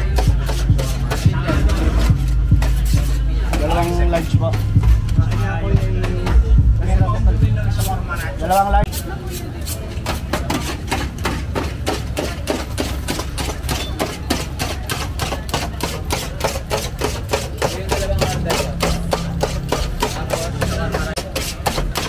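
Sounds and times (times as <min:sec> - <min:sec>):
knife chopping on steel tray: 0:08.9 - 0:22.0.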